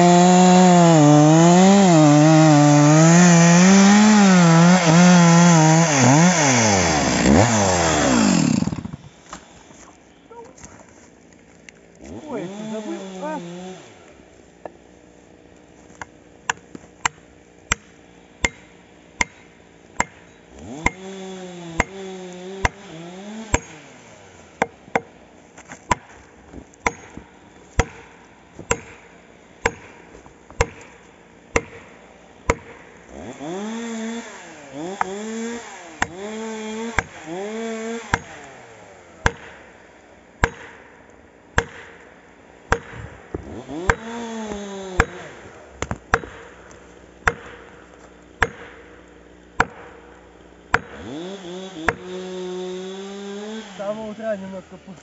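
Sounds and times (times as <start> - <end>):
axe chopping pine trunk: 0.0 - 9.1, 16.0 - 24.0, 24.6 - 38.6, 39.2 - 53.8
chainsaw revving: 0.0 - 9.2, 12.0 - 14.1, 20.4 - 24.8, 33.0 - 39.2, 43.4 - 45.9, 50.8 - 54.5.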